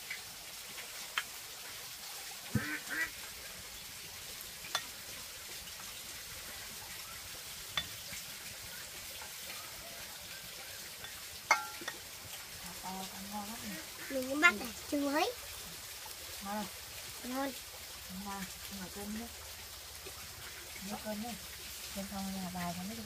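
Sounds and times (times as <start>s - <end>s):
faint steady hiss: 0.0s - 23.0s
dishes clinking: 11.0s - 12.0s.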